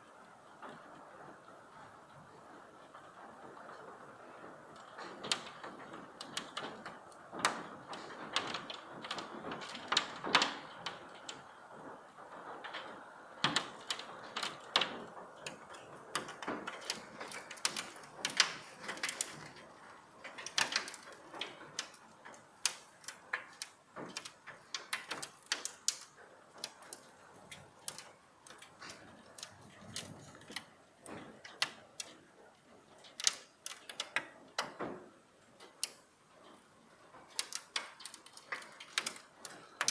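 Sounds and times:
hail and rain hissing: 0.0s - 39.9s
hailstones clicking on paving and chairs: 0.0s - 39.9s.

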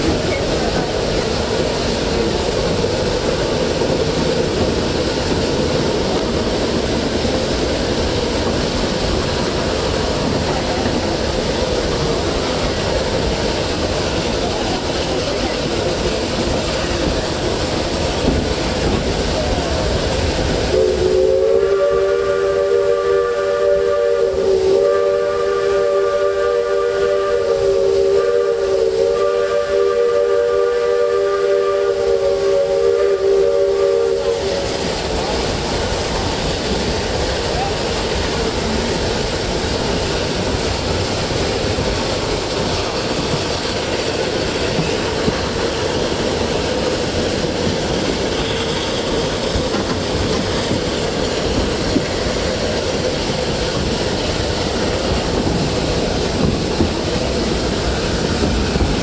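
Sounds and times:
steam train rushing hiss: 0.0s - 59.0s
steam whistle chord: 20.7s - 34.8s.

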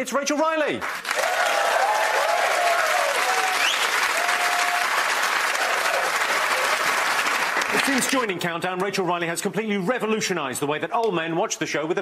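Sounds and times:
audience applauding: 0.7s - 8.4s
cheers: 1.0s - 7.8s.

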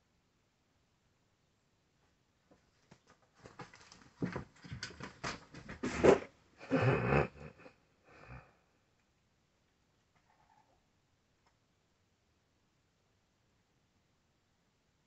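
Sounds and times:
soft scuffling: 2.5s - 6.3s
kitten snorting: 5.8s - 8.5s.

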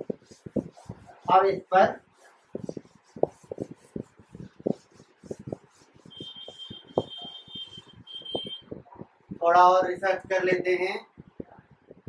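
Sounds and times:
chalk scratching on board: 0.0s - 8.5s.

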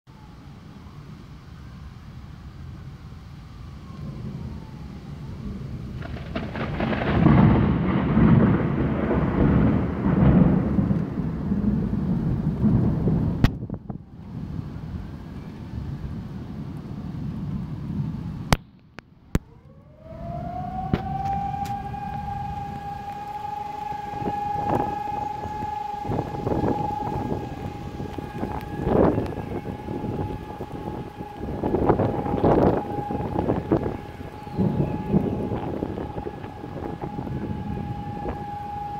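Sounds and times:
wind: 0.0s - 38.9s
rain: 0.1s - 38.9s
siren wailing: 3.4s - 11.4s, 19.3s - 38.9s
rolling thunder: 3.6s - 18.6s, 19.3s - 38.9s.

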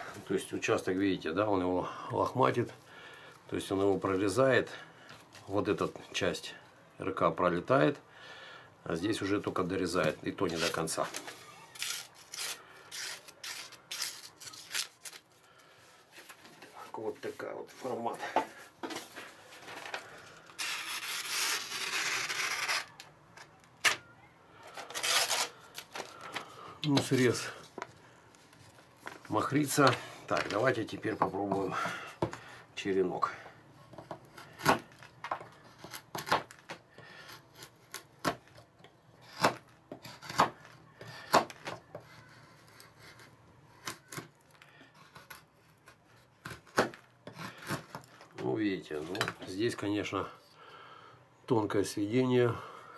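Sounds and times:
knife shaving wood: 10.0s - 15.8s, 33.9s - 38.6s, 39.2s - 48.3s
knife slicing paper: 10.5s - 15.2s, 20.6s - 23.0s.

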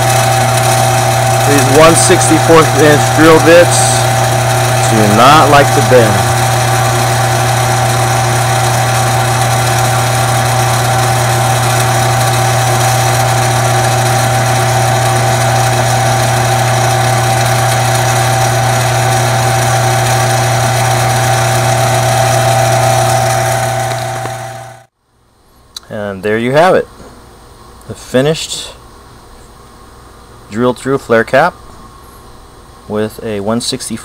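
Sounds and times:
drill bit cutting brass: 0.0s - 24.9s
lathe humming: 0.0s - 24.9s.

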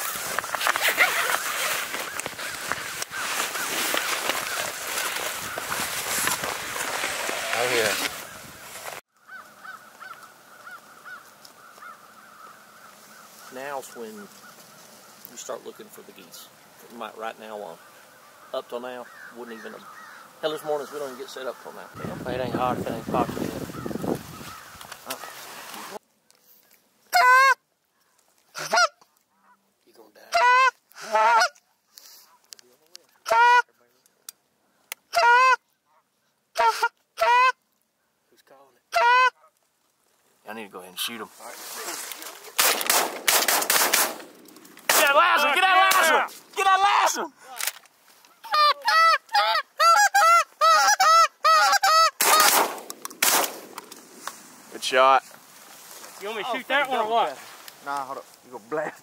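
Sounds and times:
geese honking: 0.0s - 16.6s, 17.2s - 26.0s, 27.1s - 27.6s, 28.5s - 29.6s, 30.2s - 31.6s, 33.2s - 33.8s, 35.1s - 37.6s, 38.9s - 39.6s, 48.2s - 52.6s
goose honking: 27.1s - 27.6s, 28.5s - 29.6s, 30.3s - 31.6s, 33.2s - 33.8s, 35.1s - 37.6s, 38.9s - 39.6s, 48.2s - 52.5s
shotgun blast: 42.6s - 44.3s, 52.2s - 53.7s.

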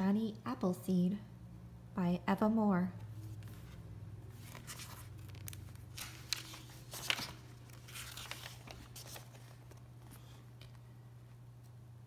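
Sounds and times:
low steady hum: 0.0s - 12.0s
book pages rustling: 3.1s - 11.8s.

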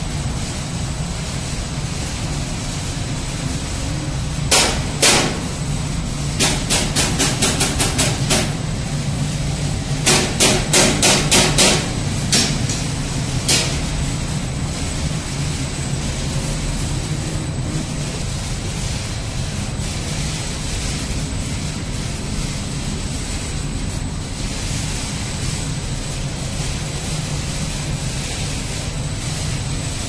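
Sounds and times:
machine hum with high whine: 0.0s - 30.0s
sharp knocks: 4.5s - 5.4s, 10.0s - 12.8s.

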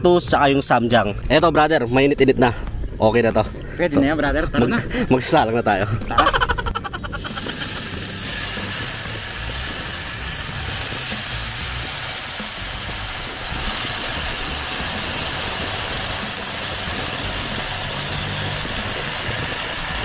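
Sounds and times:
wind rumbling on microphone: 0.0s - 20.0s
grill hissing: 6.2s - 20.0s.

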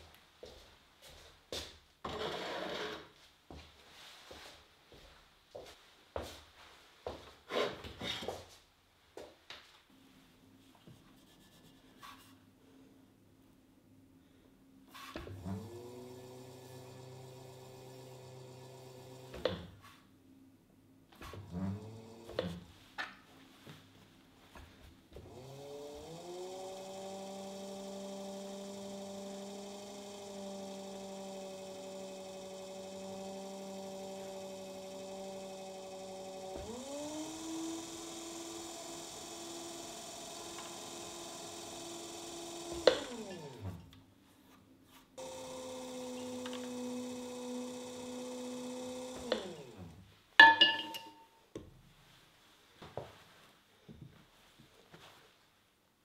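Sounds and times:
pottery wheel motor humming: 15.3s - 19.6s, 21.4s - 22.5s, 25.1s - 44.0s, 45.2s - 50.0s.

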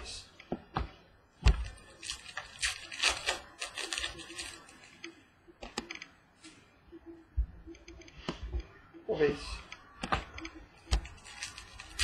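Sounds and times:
trading cards rustling: 1.5s - 5.1s, 10.8s - 12.0s.

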